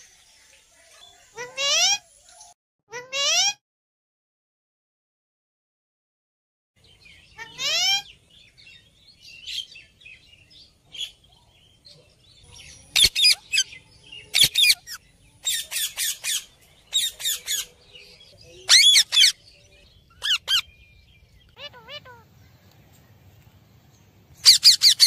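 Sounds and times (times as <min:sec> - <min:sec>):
parakeets squawking: 0:07.4 - 0:08.2, 0:12.9 - 0:17.7, 0:18.7 - 0:19.4, 0:20.1 - 0:20.7, 0:21.5 - 0:22.3, 0:24.4 - 0:25.0.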